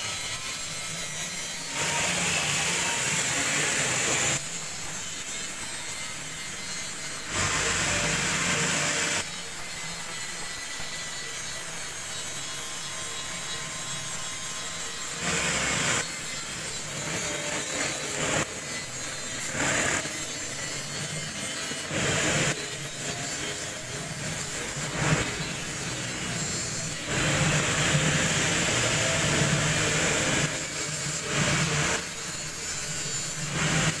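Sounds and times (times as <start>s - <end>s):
electric mixer motor running: 1.7s - 4.5s, 7.2s - 9.3s, 23.8s - 34.0s.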